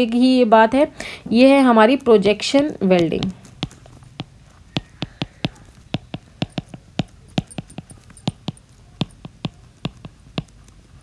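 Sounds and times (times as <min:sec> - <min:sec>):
stylus tapping on tablet screen: 0:02.6 - 0:11.0.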